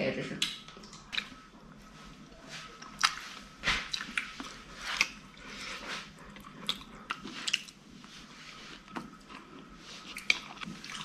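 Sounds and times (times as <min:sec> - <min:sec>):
person chewing fish: 0:00.4 - 0:01.7, 0:02.8 - 0:07.9, 0:08.6 - 0:11.0.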